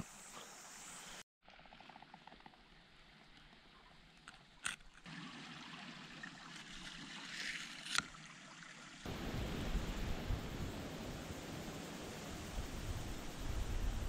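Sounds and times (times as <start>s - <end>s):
stream rushing: 5.1s - 14.0s.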